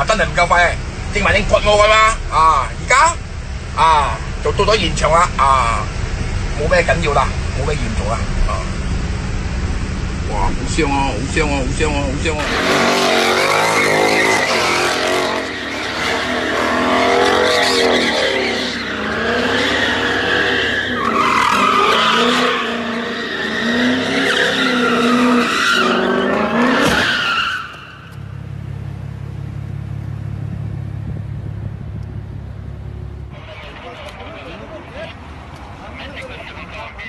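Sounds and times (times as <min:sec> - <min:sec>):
steady low rumble: 0:00.0 - 0:12.4, 0:28.2 - 0:34.7
car engine running: 0:00.0 - 0:37.0
car tires squealing on concrete: 0:12.2 - 0:28.3.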